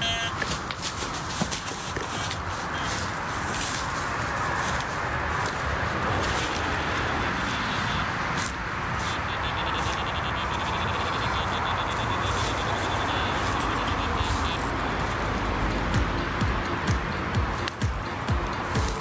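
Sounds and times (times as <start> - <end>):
footsteps through tall grass: 0.3 - 19.0
high-pitched pulsing: 9.1 - 19.0.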